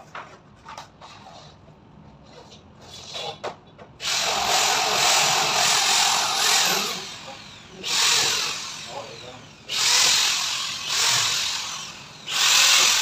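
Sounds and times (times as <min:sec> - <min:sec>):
power drill running: 0:04.0 - 0:13.0.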